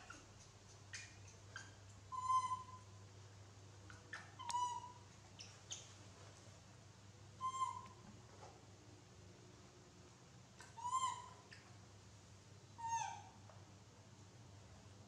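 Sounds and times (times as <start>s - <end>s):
baby monkey coo calls: 0.0s - 2.9s, 4.1s - 5.9s, 7.4s - 8.0s, 10.6s - 11.7s, 12.8s - 13.4s.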